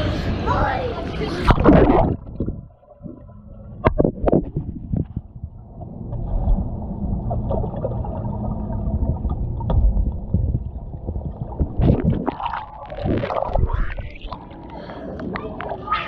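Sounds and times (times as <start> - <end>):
muffled underwater rumble: 0.0 - 16.0
water splashing: 1.4 - 4.8, 7.3 - 14.6.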